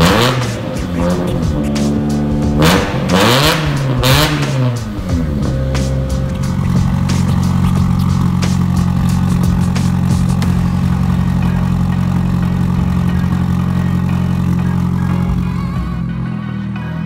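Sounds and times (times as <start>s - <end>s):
sharp exhaust cracks: 0.0s - 15.5s
car engine idling loud: 0.0s - 17.0s.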